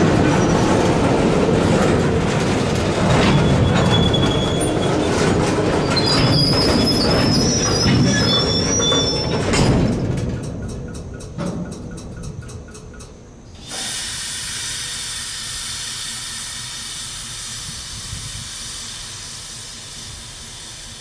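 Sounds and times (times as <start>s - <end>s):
steel wheels squealing: 0.0s - 1.1s, 2.8s - 10.2s
wheels and couplers clanking: 0.0s - 13.9s
freight cars rumbling on rails: 0.0s - 21.0s.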